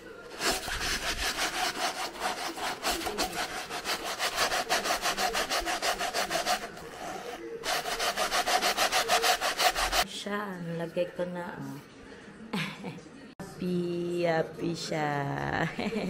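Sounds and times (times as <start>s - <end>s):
hand scrubbing padded fabric: 0.3s - 10.0s.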